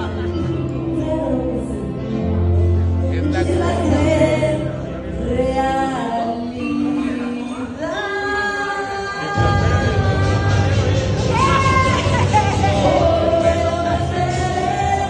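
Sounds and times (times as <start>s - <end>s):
music backing track: 0.0s - 15.0s
people singing into a microphone: 3.3s - 15.0s.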